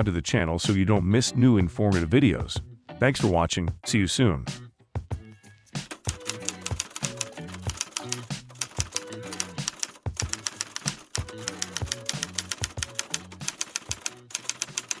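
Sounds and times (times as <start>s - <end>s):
background music: 0.0s - 15.0s
typewriter key clicks: 5.9s - 15.0s.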